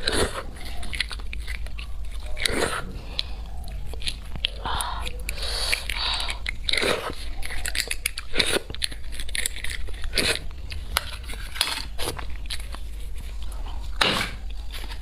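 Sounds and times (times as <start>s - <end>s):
chewing bone marrow: 0.0s - 15.0s.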